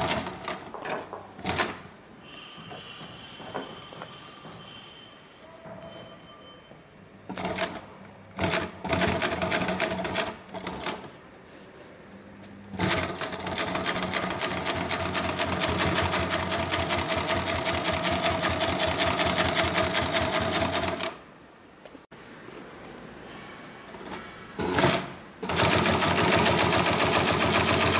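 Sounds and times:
industrial sewing machine stitching: 0.0 - 0.7, 1.4 - 1.9, 7.3 - 11.1, 12.7 - 21.2, 24.0 - 27.9.

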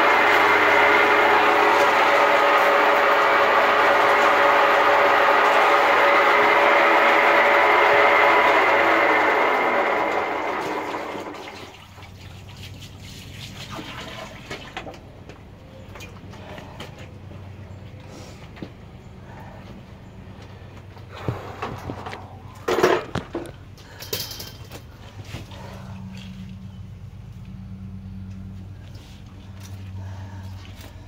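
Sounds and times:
sewer machine motor whine: 0.0 - 11.5
cable rattle: 21.6 - 25.3.

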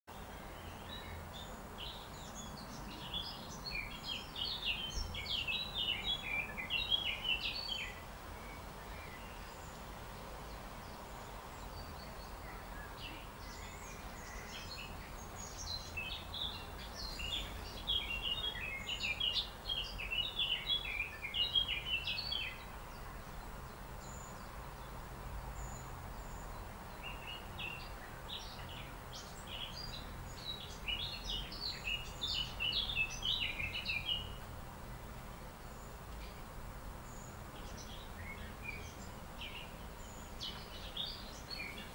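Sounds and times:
songbird singing: 0.1 - 41.9.

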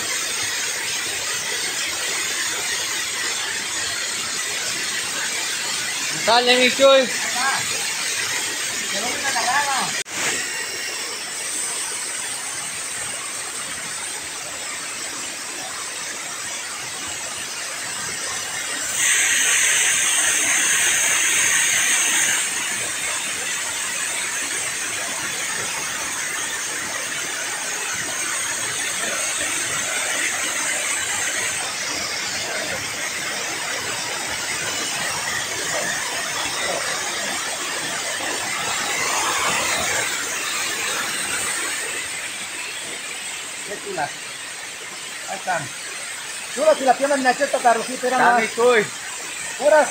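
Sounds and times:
water rushing over a weir: 0.0 - 49.9.

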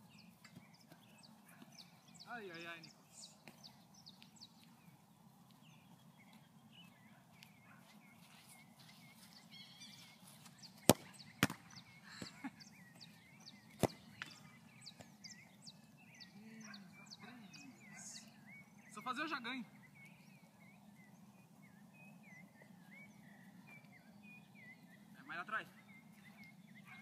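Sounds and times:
birds chirping: 0.0 - 27.0
foot kicking a ball: 10.4 - 11.8, 13.7 - 14.4
ball bouncing: 10.8 - 11.8, 13.8 - 14.4.

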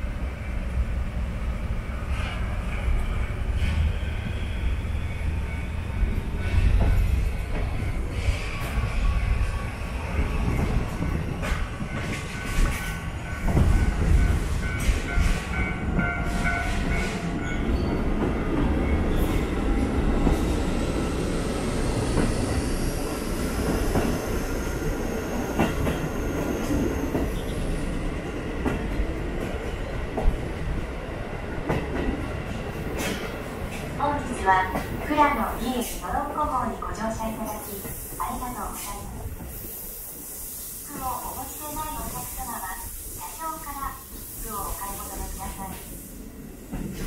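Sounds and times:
train wheels clattering on rails: 2.0 - 36.3, 46.6 - 47.0.

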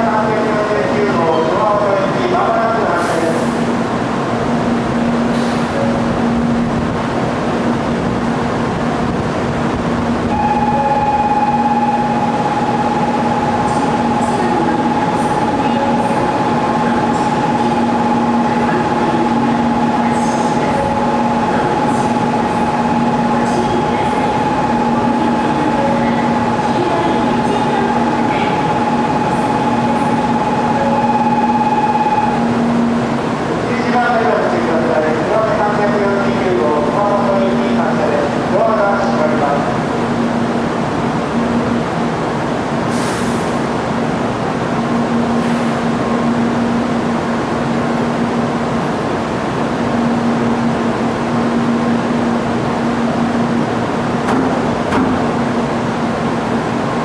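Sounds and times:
steady higher whine: 3.6 - 42.8.

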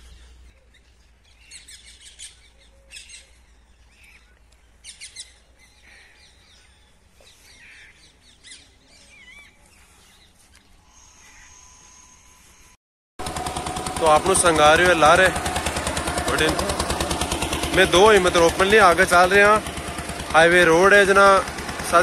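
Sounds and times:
small birds twittering: 0.0 - 12.6.

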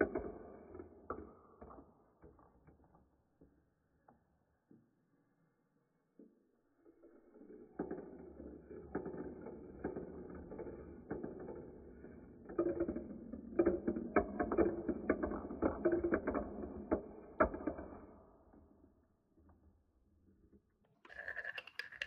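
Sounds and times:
balls clicking and clacking: 7.1 - 18.6, 20.9 - 22.0
balls rolling down plastic chutes: 7.4 - 18.2, 21.1 - 22.0.

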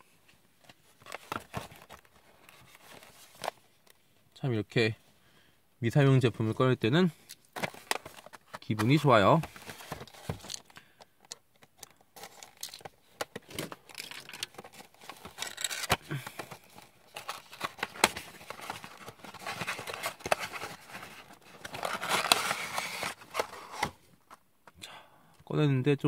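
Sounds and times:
plastic crinkling: 12.2 - 23.8
cardboard scraping: 17.1 - 24.0.

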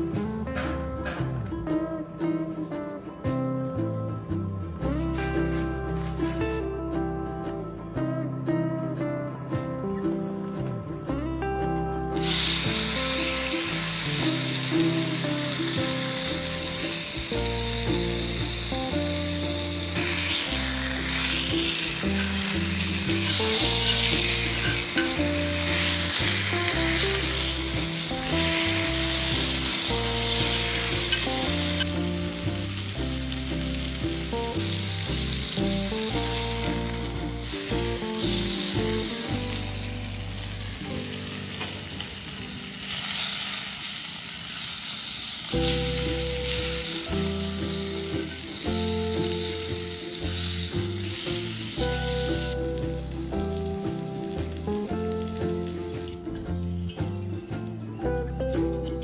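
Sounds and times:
background music: 0.0 - 43.8, 45.5 - 59.0
food sizzling in a pan: 4.8 - 6.6, 12.2 - 56.4.

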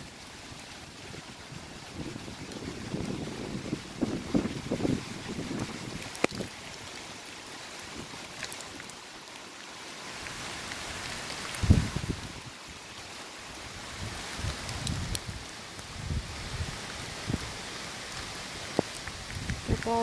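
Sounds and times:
rain and hail falling: 0.0 - 20.0
wind buffeting microphone: 0.9 - 6.6, 11.5 - 12.6, 13.8 - 17.6, 18.7 - 20.0
sharp hail ticks: 5.8 - 7.0, 14.5 - 15.9, 18.1 - 20.0.

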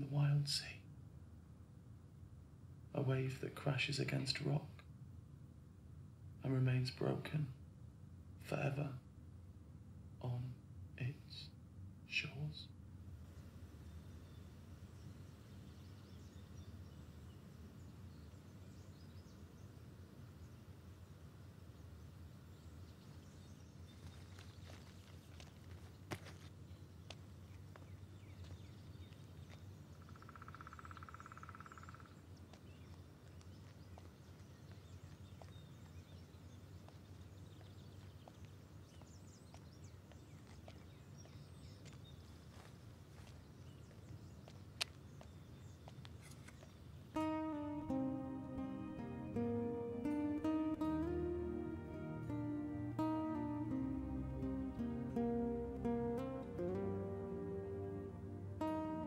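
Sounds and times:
small birds chirping: 12.2 - 58.0.

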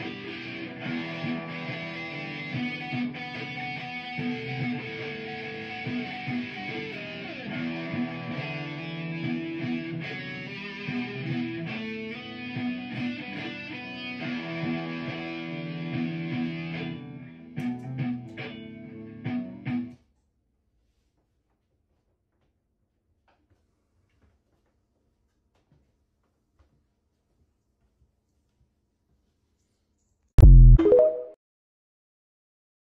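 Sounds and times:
electric guitar improvisation: 0.0 - 20.0
looped guitar backing layer: 0.0 - 20.0.

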